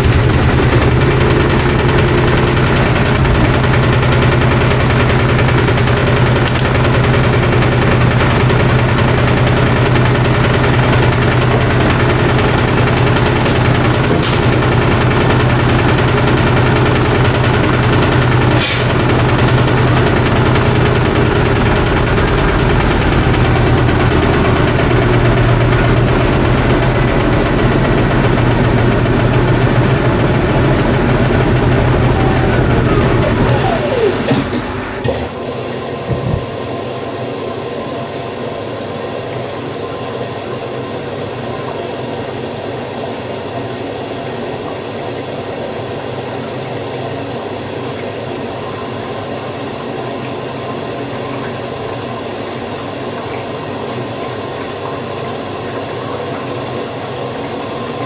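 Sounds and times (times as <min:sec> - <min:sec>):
motor whine falling in pitch: 0:00.0 - 0:36.8
washer drum spinning: 0:00.0 - 0:58.0.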